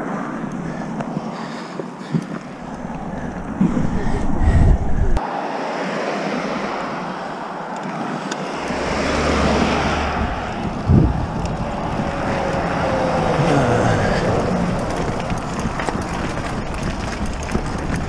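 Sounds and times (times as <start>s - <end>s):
wind buffeting microphone: 0.0s - 5.2s, 6.5s - 18.0s
tyres rumbling on gravel: 2.0s - 4.6s, 8.6s - 18.0s.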